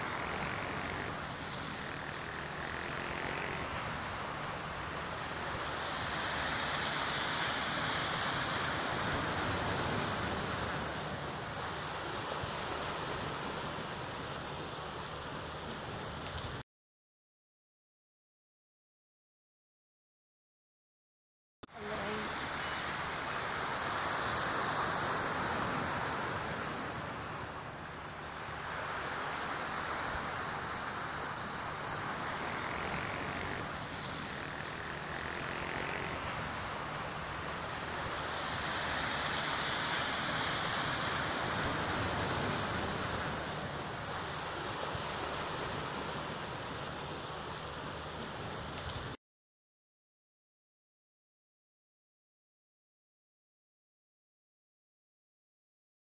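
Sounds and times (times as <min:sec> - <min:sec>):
sea waves washing in: 0:00.0 - 0:16.6, 0:21.7 - 0:49.2.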